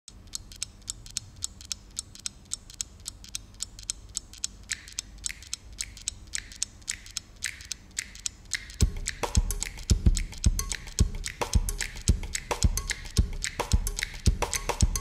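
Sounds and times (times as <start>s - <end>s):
stopwatch app ticking: 0.1s - 15.0s.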